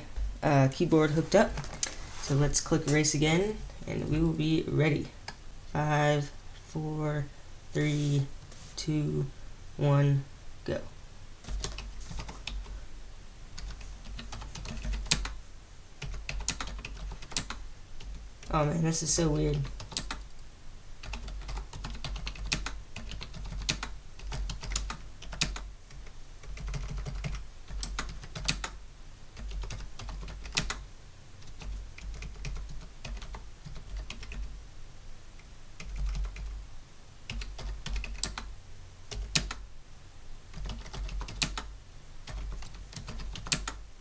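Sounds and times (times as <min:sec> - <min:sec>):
keyboard typing: 0:11.4 - 0:12.8, 0:13.6 - 0:15.4, 0:16.0 - 0:18.6, 0:19.5 - 0:20.3, 0:21.0 - 0:28.8, 0:29.4 - 0:30.8, 0:31.4 - 0:34.5, 0:35.8 - 0:36.6, 0:37.3 - 0:38.5, 0:39.1 - 0:39.6, 0:40.5 - 0:43.8.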